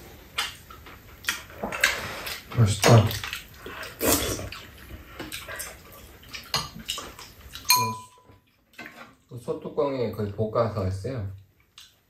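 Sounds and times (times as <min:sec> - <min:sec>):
wet chewing and slurping: 0:00.3 - 0:07.7
metal spoons scraping bowls: 0:07.6 - 0:08.4.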